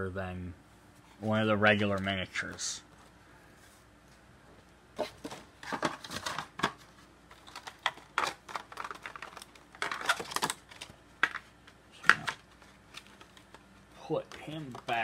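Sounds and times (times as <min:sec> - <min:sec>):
plastic pieces clicking and rattling: 0:07.3 - 0:11.4.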